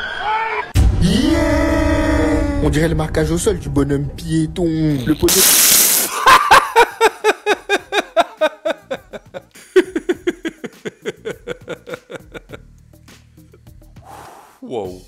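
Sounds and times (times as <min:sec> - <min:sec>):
man laughing heartily: 0:06.0 - 0:12.7.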